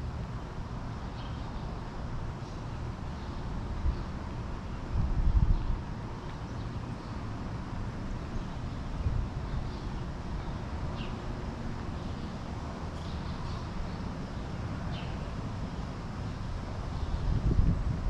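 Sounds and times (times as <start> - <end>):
wind buffeting microphone: 4.8 - 6.2, 16.5 - 18.0.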